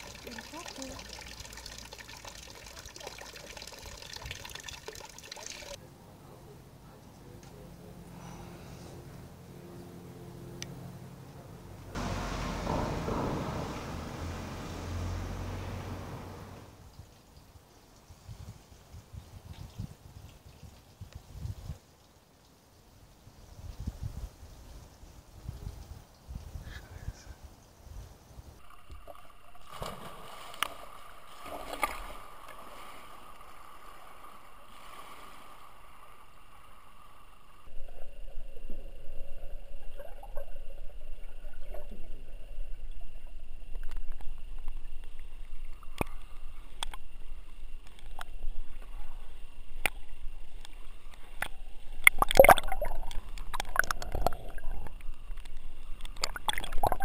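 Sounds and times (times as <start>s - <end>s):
underwater water rumble: 11.9s - 16.8s, 28.6s - 57.0s
splashing bursts: 12.0s - 16.8s, 29.6s - 33.4s
faint steady whine: 28.5s - 57.0s
underwater clicks and gurgles: 28.6s - 57.0s.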